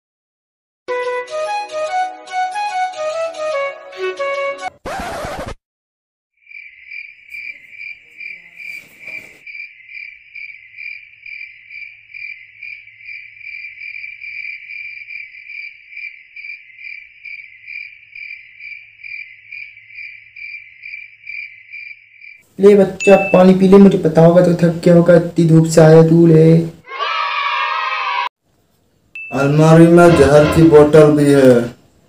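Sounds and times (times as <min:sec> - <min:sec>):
cricket chirping: 0:06.4 - 0:22.5.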